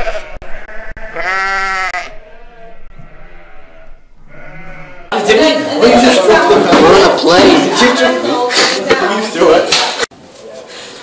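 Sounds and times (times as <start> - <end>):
sheep bleating: 0.0 - 5.2.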